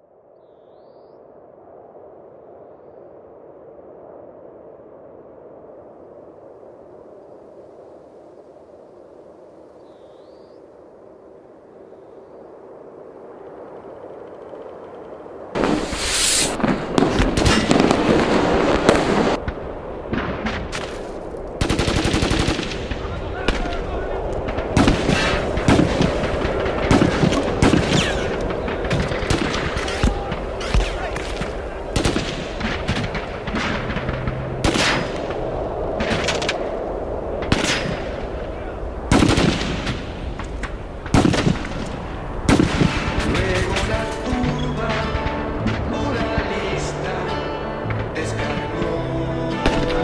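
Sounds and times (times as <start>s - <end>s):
hissing rush: 10.4s - 44.7s
rapid popping and crackling blasts: 10.6s - 48.6s
gunfire volleys: 15.6s - 36.8s, 37.4s - 38.5s, 39.1s - 45.4s.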